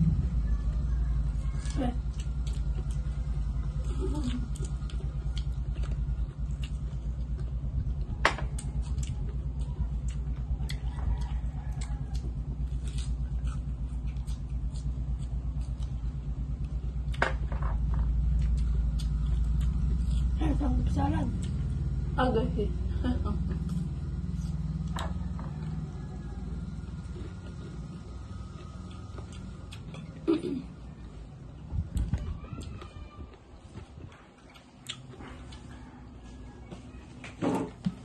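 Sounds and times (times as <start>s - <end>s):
steady low hum: 0.0s - 38.0s
chewing and mouth smacks: 1.6s - 16.0s, 18.2s - 20.4s, 26.9s - 30.2s, 34.0s - 35.9s.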